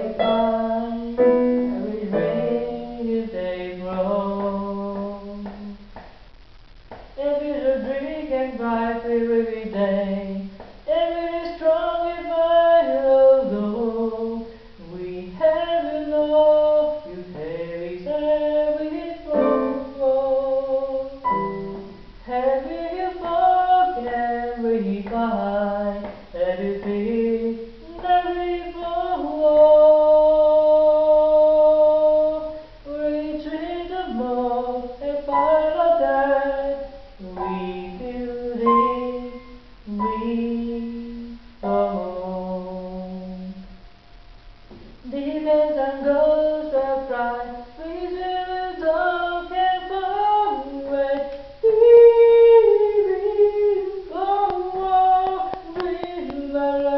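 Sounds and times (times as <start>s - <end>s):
electric keyboard playing: 0.0s - 3.0s, 19.3s - 20.2s, 21.1s - 22.3s
man singing: 0.0s - 5.9s, 7.2s - 21.6s, 22.2s - 43.6s.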